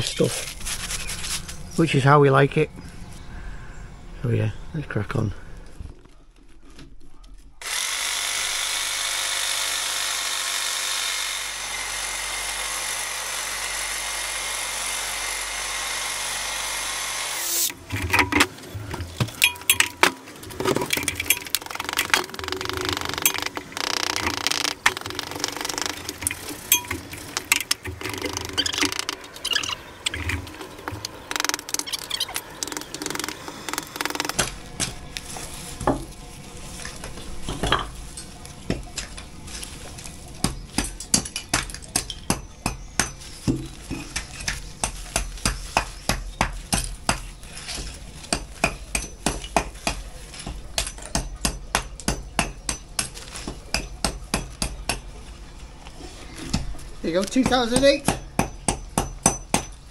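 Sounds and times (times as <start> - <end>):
hammer striking brick: 57.4 - 59.8.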